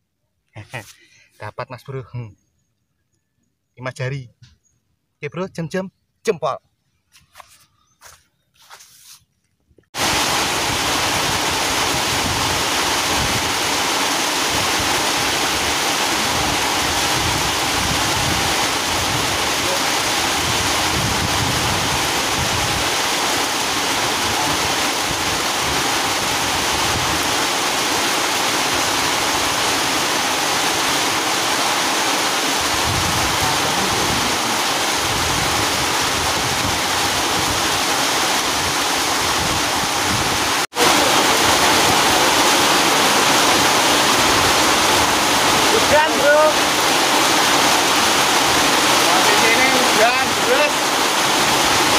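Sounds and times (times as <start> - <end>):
wind buffeting microphone: 10.0 - 13.7, 14.4 - 23.0, 32.6 - 37.8, 38.5 - 40.6
heavy rain pouring: 10.0 - 51.9.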